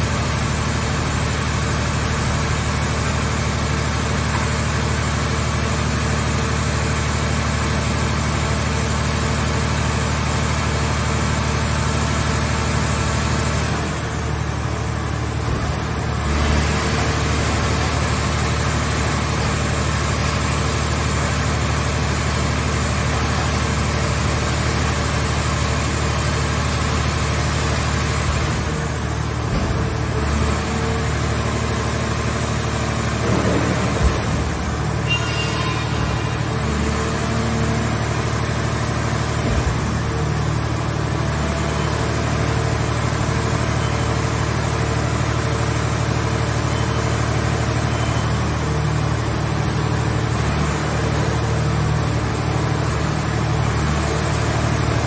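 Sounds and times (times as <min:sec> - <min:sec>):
hydraulic machine running: 0:11.2 - 0:55.0
low thud: 0:33.2 - 0:35.1.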